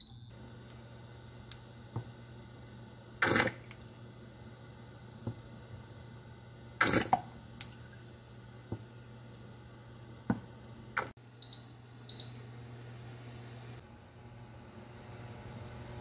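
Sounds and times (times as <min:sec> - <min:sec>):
cooktop beeps: 0:00.0 - 0:00.3, 0:11.4 - 0:12.6.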